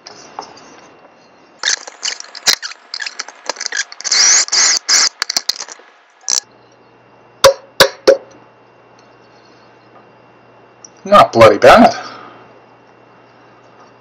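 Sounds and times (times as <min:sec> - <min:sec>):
scraping and rustling on wood: 0:00.0 - 0:06.4
sharp knock: 0:07.4 - 0:08.3.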